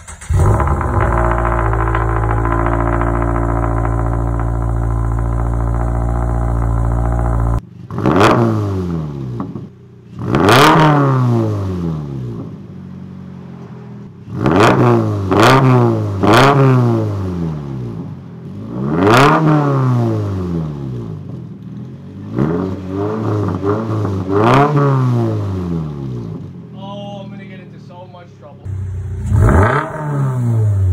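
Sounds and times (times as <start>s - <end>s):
car engine idling: 0.0s - 8.0s, 9.3s - 10.3s, 26.2s - 30.9s
car engine revving in blips: 0.0s - 26.5s, 28.6s - 30.9s.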